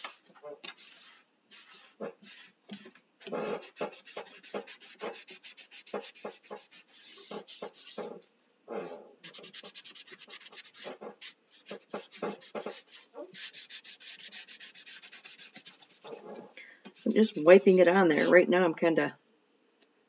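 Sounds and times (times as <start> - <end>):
wipe scrubbing on wood: 3.3 - 8.2, 9.2 - 16.3.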